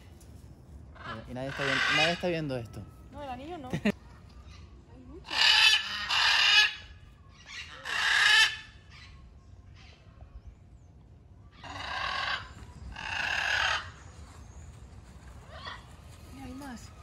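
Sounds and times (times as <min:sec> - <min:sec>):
macaws squawking: 0:01.0 - 0:02.4, 0:05.2 - 0:09.1, 0:11.6 - 0:14.0.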